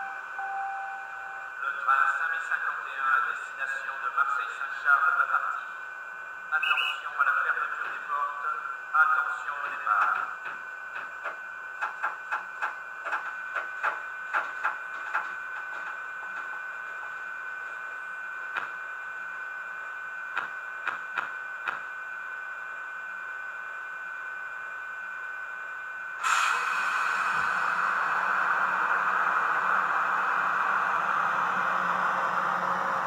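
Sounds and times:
steady high whine: 0.0s - 10.9s, 12.9s - 33.0s
loud hiss: 26.2s - 30.9s.

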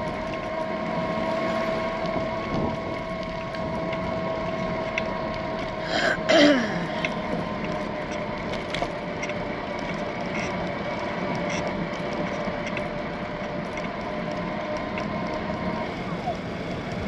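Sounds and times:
wind noise: 0.0s - 5.9s
bicycle rolling: 0.0s - 17.0s
bike clicks and rattles: 1.9s - 15.8s.

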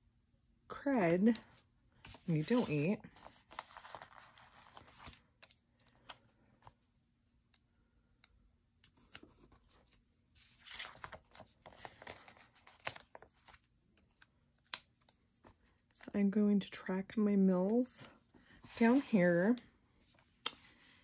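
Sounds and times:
stickers peeling and paper rustling: 2.1s - 6.8s.

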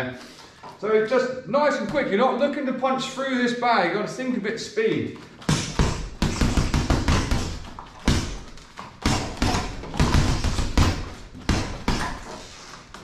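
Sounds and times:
punches thudding on heavy bag: 5.5s - 12.3s.

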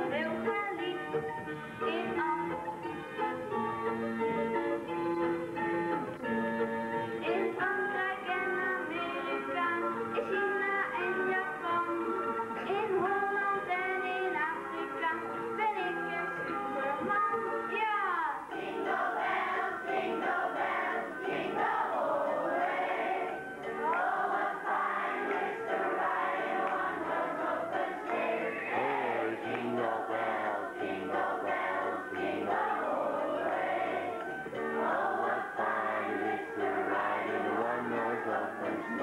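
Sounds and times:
children's choir singing: 1.8s - 2.6s, 18.3s - 39.0s.

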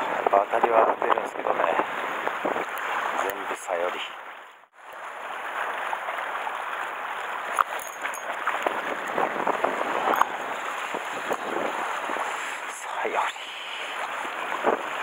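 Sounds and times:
small water splashes: 1.1s - 15.0s
surf rushing against rocks: 7.6s - 15.0s.

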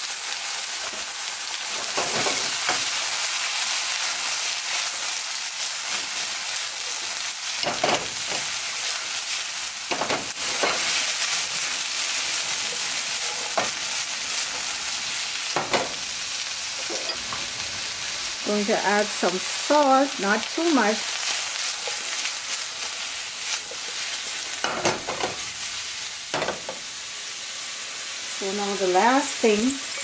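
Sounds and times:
vegetables sizzling in oil: 0.0s - 30.0s.

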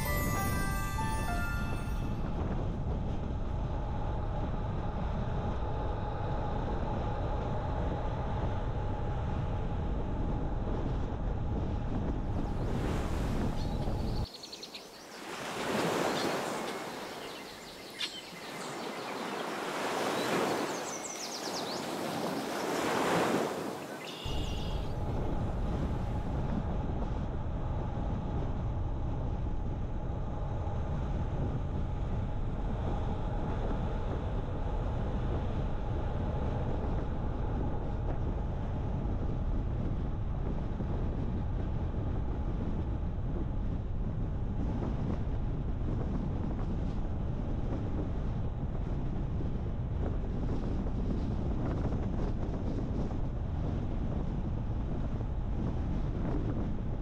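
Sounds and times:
car road and wind noise: 2.3s - 14.3s, 16.0s - 57.0s
ocean surf breaking: 15.0s - 24.1s.

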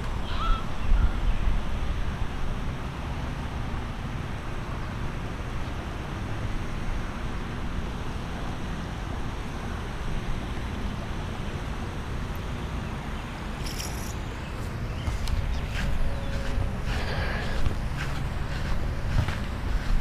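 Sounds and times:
outdoor rushing noise: 1.4s - 20.0s
wind buffeting microphone: 14.2s - 20.0s.

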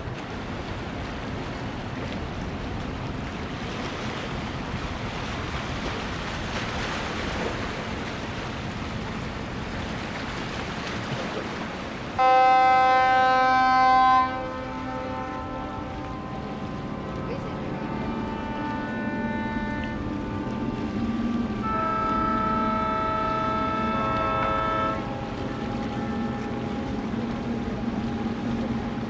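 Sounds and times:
wind and water hissing: 0.0s - 29.0s
boat horn blast: 3.6s - 29.0s.

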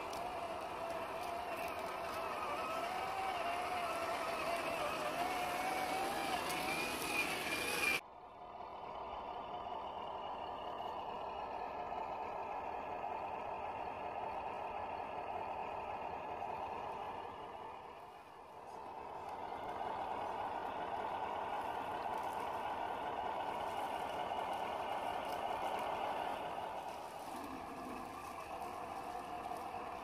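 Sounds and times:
electric motor whining: 0.0s - 8.0s.

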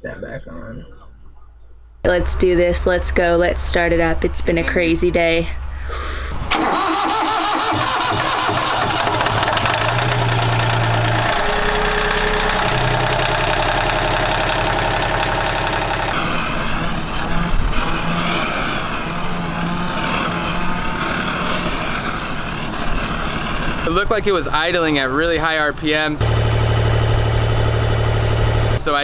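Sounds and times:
diesel engine idling: 2.1s - 29.0s
wet exhaust pulsing and spitting: 16.1s - 24.2s.

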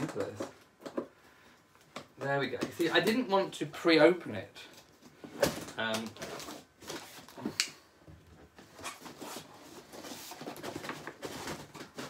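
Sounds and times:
cardboard scraping and rustling: 8.6s - 12.0s.

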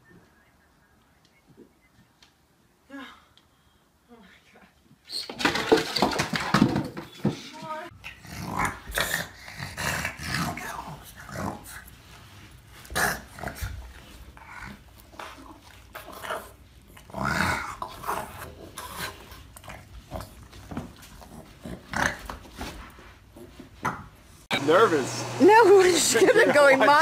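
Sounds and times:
dog grunting and growling: 7.9s - 11.9s, 12.8s - 20.5s.

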